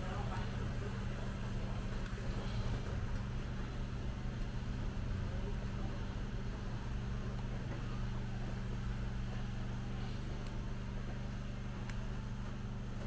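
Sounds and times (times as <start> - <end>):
low machine hum: 0.0 - 13.0
faint clicks: 11.8 - 12.1.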